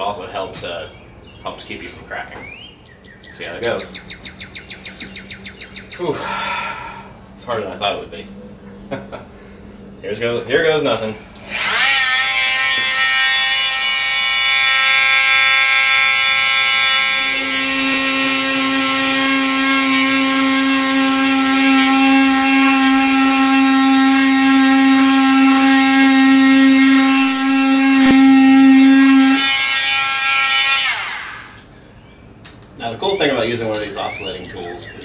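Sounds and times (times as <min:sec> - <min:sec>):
power tool high whine: 0:11.0 - 0:31.7
blade buzzing through plastic: 0:11.4 - 0:31.7.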